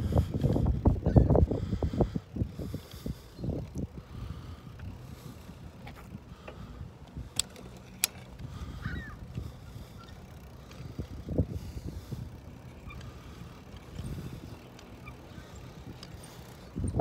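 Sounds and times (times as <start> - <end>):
bicycle rumbling over concrete: 0.0 - 17.0
bicycle knocks and rattles: 7.2 - 11.2.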